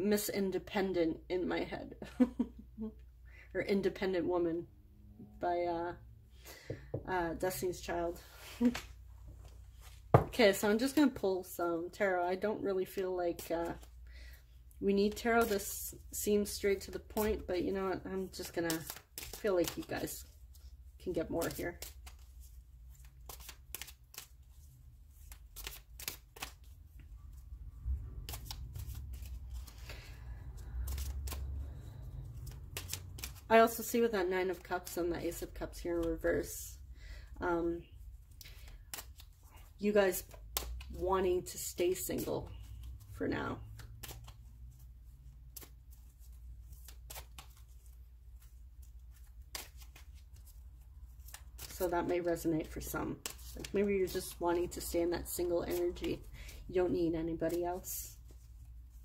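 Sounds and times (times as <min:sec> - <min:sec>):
cards being shuffled: 0:08.3 - 0:11.2, 0:12.8 - 0:14.0, 0:15.0 - 0:36.6, 0:37.9 - 0:59.0.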